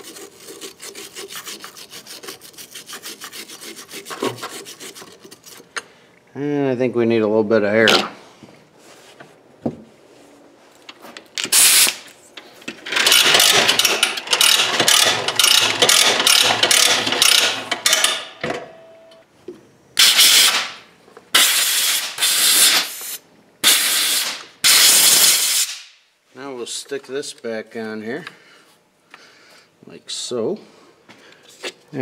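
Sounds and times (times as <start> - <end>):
compressed air blasts: 11.5 - 12.1, 20.0 - 26.0
hose reel ratchet clicking: 12.9 - 18.2.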